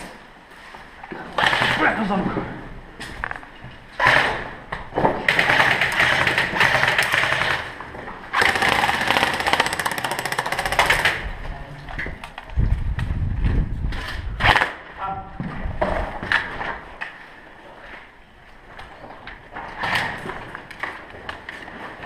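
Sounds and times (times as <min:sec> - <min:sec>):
airsoft rifle automatic fire: 0:05.3 - 0:07.7, 0:08.3 - 0:11.2.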